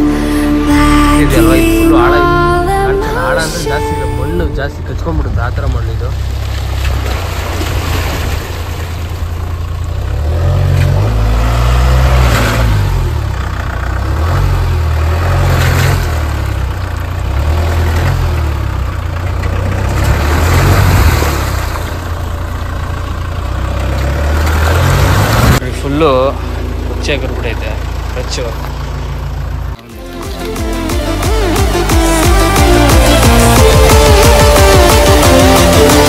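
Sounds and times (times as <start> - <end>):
engine revving: 0.0 - 36.0
tyres splashing through water: 6.0 - 13.0, 19.2 - 22.6.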